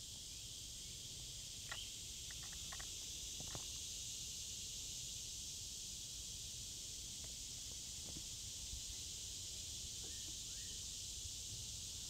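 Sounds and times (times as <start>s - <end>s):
insects droning: 0.0s - 12.0s
faint ticks: 1.6s - 3.7s.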